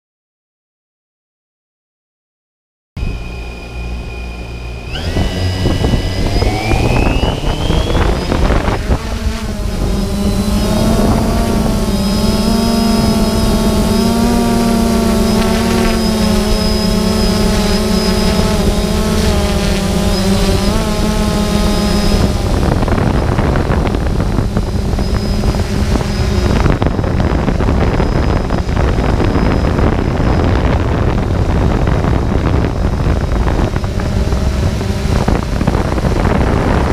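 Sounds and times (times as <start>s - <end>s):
motor whining: 3.0s - 36.9s.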